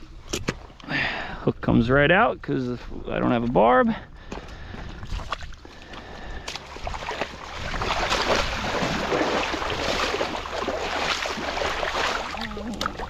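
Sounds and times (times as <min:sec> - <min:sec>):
shark splashing in shallow water: 0:05.0 - 0:13.0.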